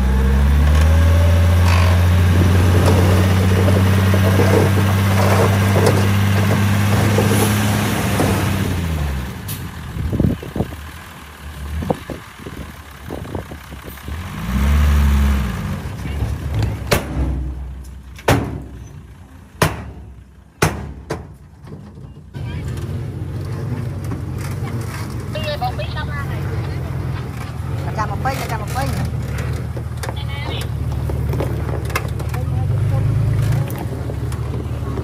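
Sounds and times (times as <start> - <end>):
dump truck engine running: 0.0 - 35.0
sharp bangs: 16.7 - 18.8, 19.6 - 21.4.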